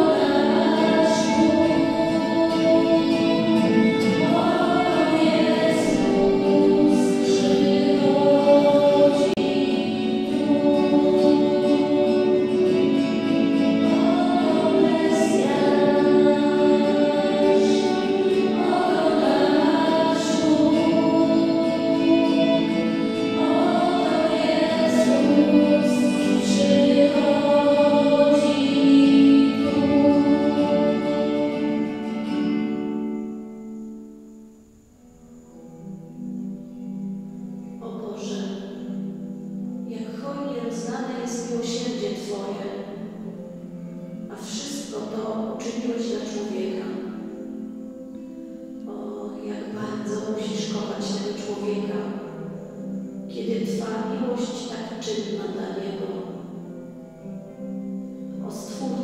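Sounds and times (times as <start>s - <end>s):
choir singing sacred music: 0.0s - 59.0s.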